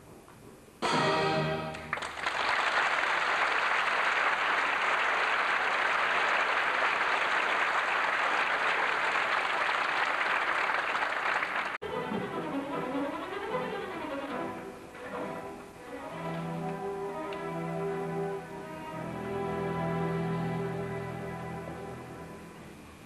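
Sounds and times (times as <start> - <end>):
orchestral chord: 0.8 - 1.9
audience applause: 1.7 - 11.8.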